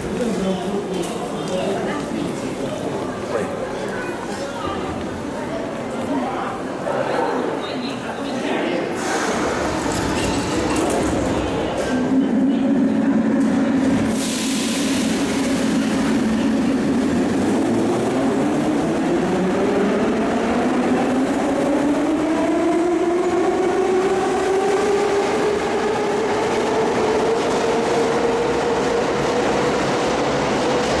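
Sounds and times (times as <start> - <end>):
train wheels on rail: 8.9 - 31.0.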